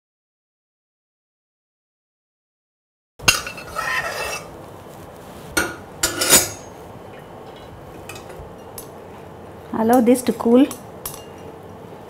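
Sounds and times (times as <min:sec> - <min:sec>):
metal strainer scraping pan: 0:03.3 - 0:04.5.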